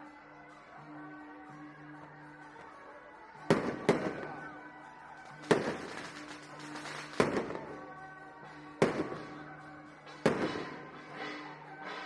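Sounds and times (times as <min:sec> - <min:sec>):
steady music: 0:00.0 - 0:12.0
firecracker bangs: 0:05.4 - 0:07.7, 0:10.2 - 0:11.0.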